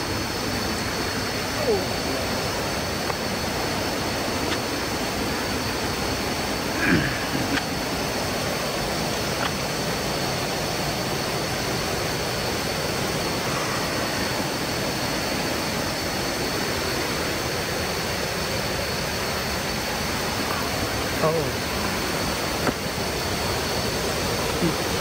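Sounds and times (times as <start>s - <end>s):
faint steady high tone: 0.0s - 7.6s
falling water rushing: 0.0s - 25.0s.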